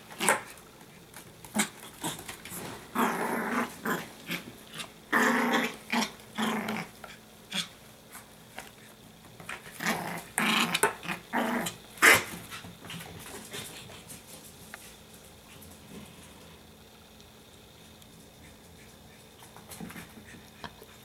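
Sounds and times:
puppy growling playfully: 1.4 - 7.8, 9.4 - 13.9.

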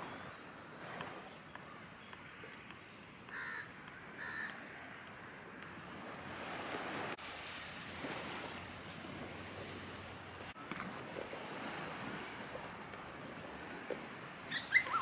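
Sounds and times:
surf washing on beach: 4.1 - 14.5.

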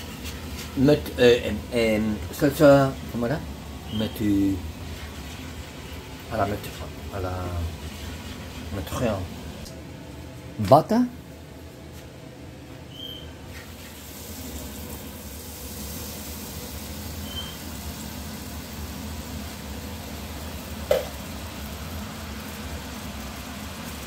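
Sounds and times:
butter sizzling in a frying pan: 13.5 - 24.0.

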